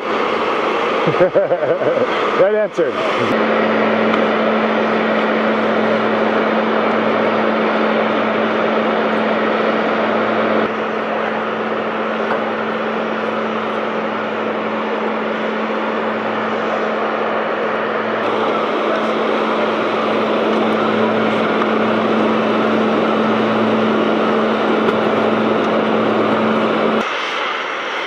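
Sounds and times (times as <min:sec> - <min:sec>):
chairlift machinery hum: 0:00.0 - 0:28.0
dense rushing noise: 0:00.0 - 0:28.0.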